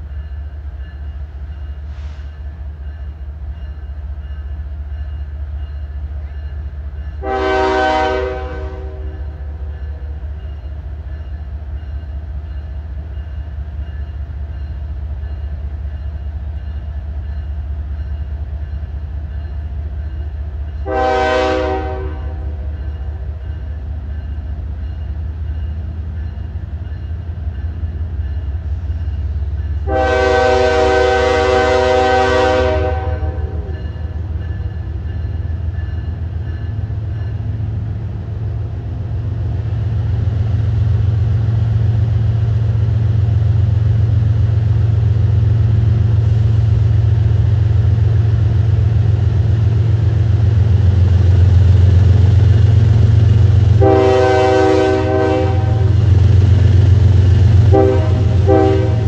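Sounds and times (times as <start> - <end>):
low train rumble: 0.0 - 59.0
train air horn blasts: 7.2 - 9.4, 20.8 - 22.7, 29.8 - 33.8, 53.7 - 56.1, 57.6 - 59.0.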